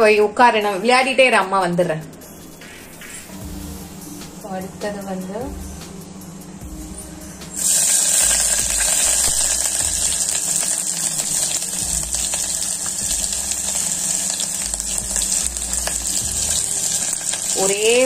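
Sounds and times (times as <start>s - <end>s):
onion sizzling in hot oil: 7.5s - 18.0s.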